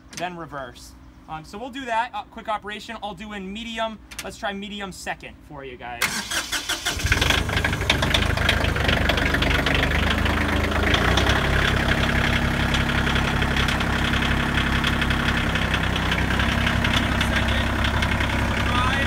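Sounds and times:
tractor diesel engine idling: 6.0 - 19.0.

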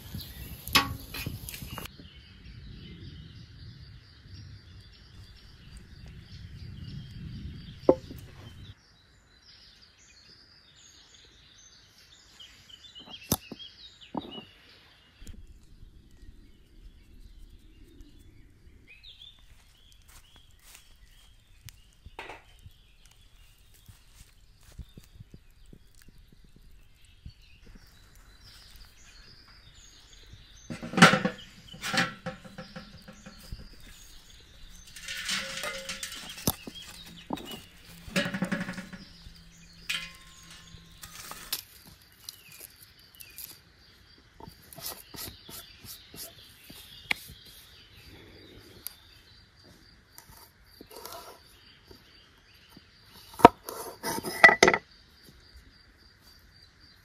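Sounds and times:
insects and birds chirping: 0.0 - 57.0
metal clanks and scraping: 0.6 - 1.9, 30.6 - 42.5, 53.2 - 54.8.

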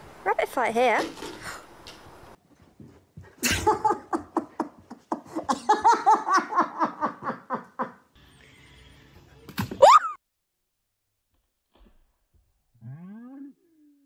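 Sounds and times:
person laughing: 3.4 - 8.1.

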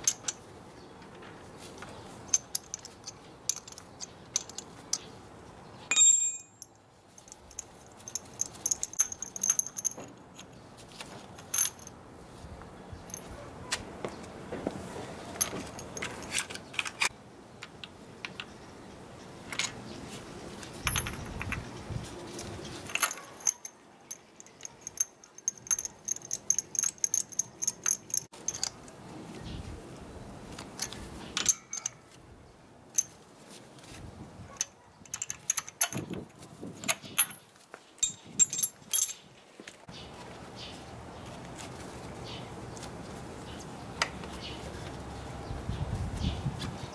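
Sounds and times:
metal hand tools clinking: 0.0 - 0.4, 2.2 - 5.1, 5.9 - 10.6, 11.3 - 12.0, 22.4 - 28.9, 30.8 - 32.2, 36.8 - 39.3
light metallic ringing: 5.9 - 7.3.

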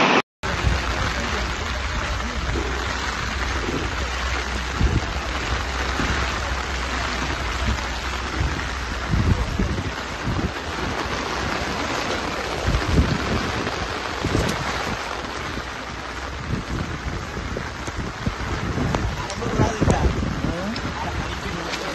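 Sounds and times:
heavy rain hissing: 0.0 - 21.9
wind gusting on microphone: 0.0 - 21.9.

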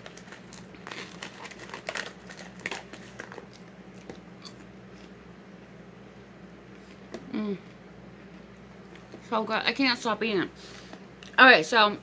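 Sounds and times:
plastic bag crinkling: 0.0 - 3.7
popcorn crunching in mouth: 0.0 - 5.1.

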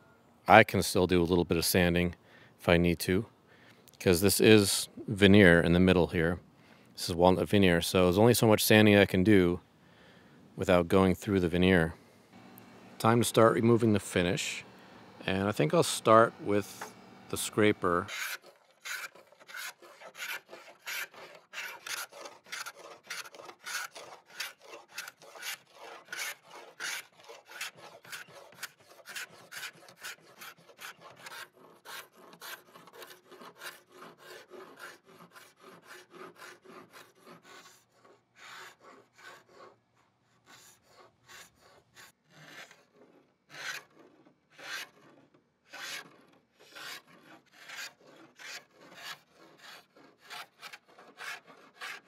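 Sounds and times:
hand scraper rasping on wood: 12.4 - 52.0.

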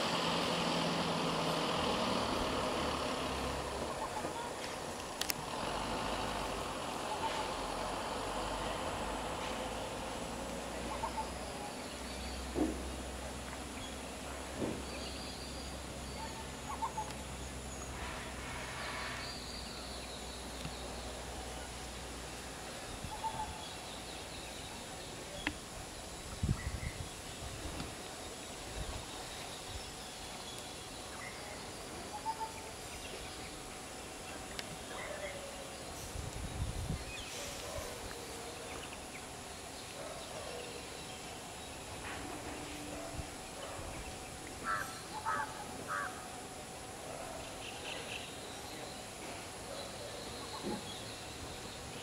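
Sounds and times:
steady outdoor hiss: 0.0 - 52.0
faint bird calls: 10.7 - 12.5, 14.9 - 20.9, 42.2 - 46.4.

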